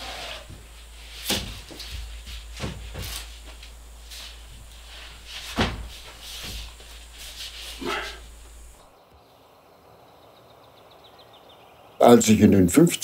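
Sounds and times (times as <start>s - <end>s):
paintings scraping: 0.0s - 8.9s
wooden knocks and bumps: 0.4s - 3.8s, 4.4s - 7.0s.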